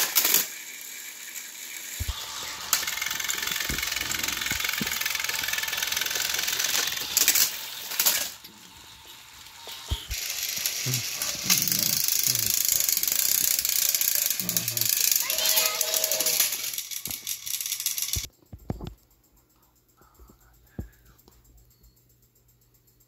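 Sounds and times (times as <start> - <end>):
toy train motors whirring: 0.0 - 18.3.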